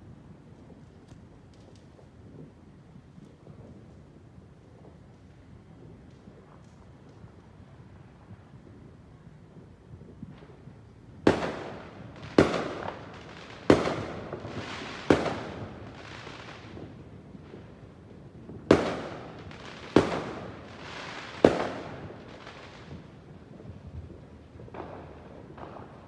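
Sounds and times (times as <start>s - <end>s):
fireworks bangs: 11.3s - 26.0s.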